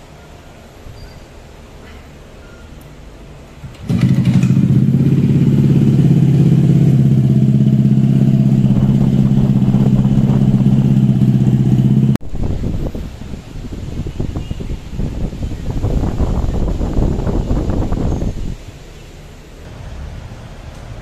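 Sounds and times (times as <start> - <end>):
scooter engine idling: 3.6 - 12.2.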